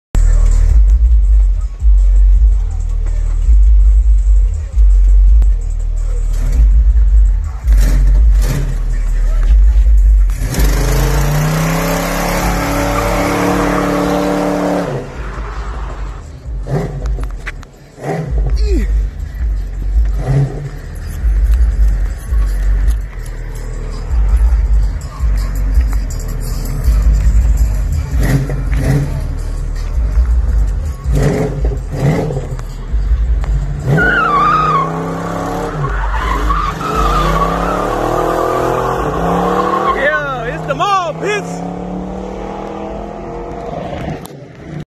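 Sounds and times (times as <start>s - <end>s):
tires screeching: 0.2s - 44.8s
car engine revving hard: 10.2s - 17.3s, 20.0s - 22.6s, 27.1s - 30.1s, 30.9s - 32.6s, 33.7s - 44.8s
tyres squealing: 33.8s - 41.2s.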